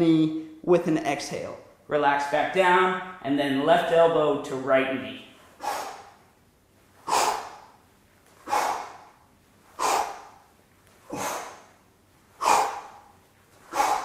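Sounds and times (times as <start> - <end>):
man exhaling forcefully: 5.6 - 6.2, 7.0 - 7.8, 8.4 - 9.2, 9.8 - 11.8, 12.4 - 14.0.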